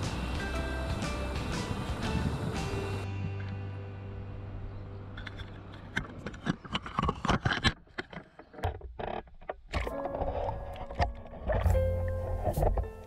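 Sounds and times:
background music: 0.0 - 6.0, 9.8 - 13.0.

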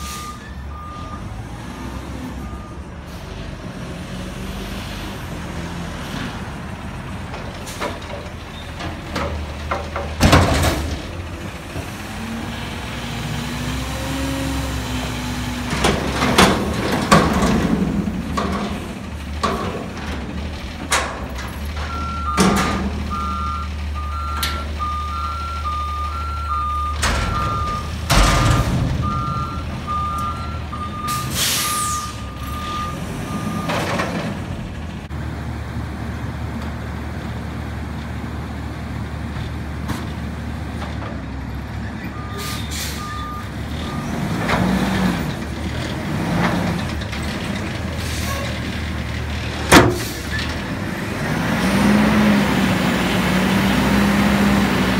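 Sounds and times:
diesel engine running: 2.3 - 54.9
metal clanks: 15.7 - 23.1, 27.0 - 30.2
backup alarm beeping: 21.9 - 33.8.

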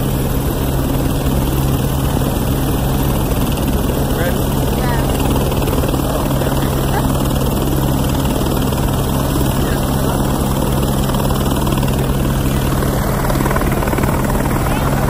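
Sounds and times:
engine drone: 0.0 - 15.0.

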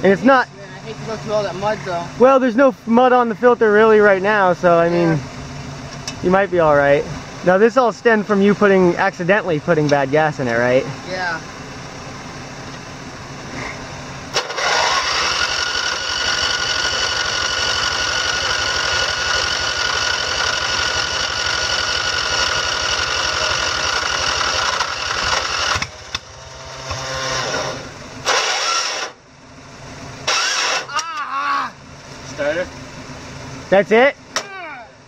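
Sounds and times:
electric starter cranking engine: 14.3 - 29.2, 30.2 - 31.0.

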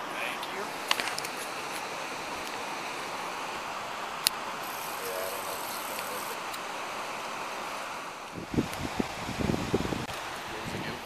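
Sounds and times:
steady rushing noise: 0.0 - 11.0.

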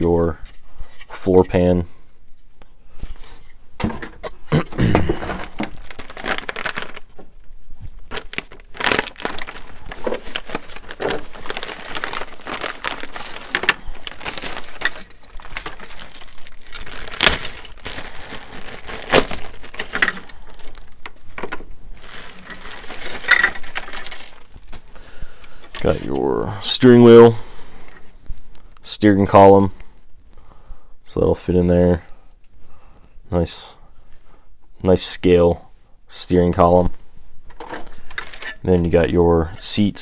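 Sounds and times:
plastic bag crinkling: 5.0 - 26.2.

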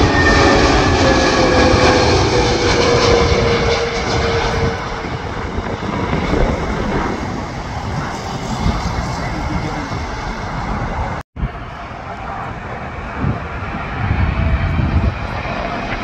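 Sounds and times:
jet airliner passing overhead: 0.0 - 16.0.

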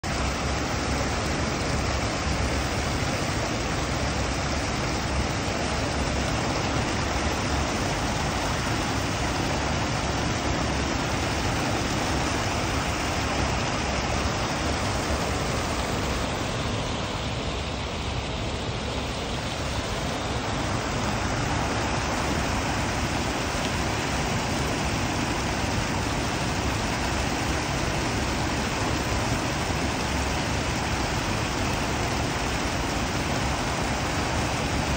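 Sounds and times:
water rushing over weir: 0.0 - 34.9.

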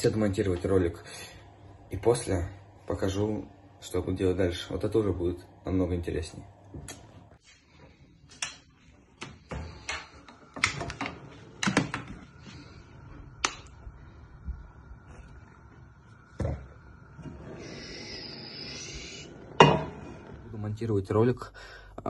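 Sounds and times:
frying pans clicking and knocking: 9.2 - 12.3
steady hiss: 9.2 - 22.0.

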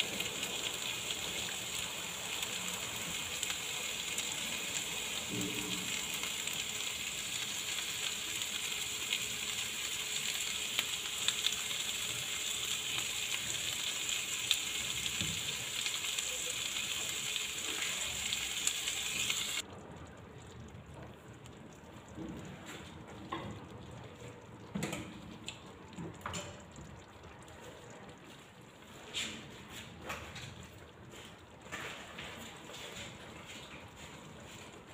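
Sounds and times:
chicken and onions sizzling in pan: 0.0 - 19.6.

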